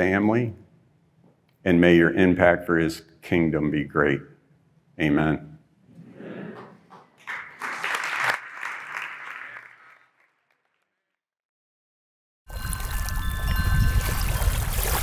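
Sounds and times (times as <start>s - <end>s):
crowd applauding: 7.2s - 10.8s.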